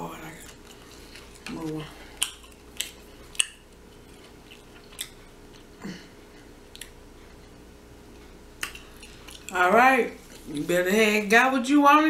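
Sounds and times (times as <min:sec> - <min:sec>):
chewing clicks: 0:02.2 - 0:05.7, 0:06.7 - 0:07.0
lip smacks: 0:02.2 - 0:05.7, 0:06.7 - 0:07.0, 0:08.6 - 0:09.5.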